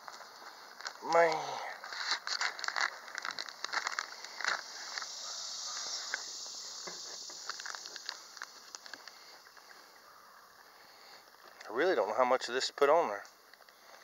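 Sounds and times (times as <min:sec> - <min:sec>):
plastic package crinkling: 0:00.0 - 0:09.8
high hiss: 0:02.9 - 0:10.0.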